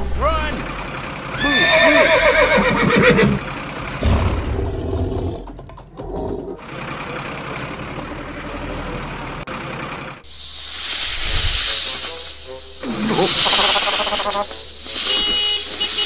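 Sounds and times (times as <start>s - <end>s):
horse whinny: 1.4s - 3.5s.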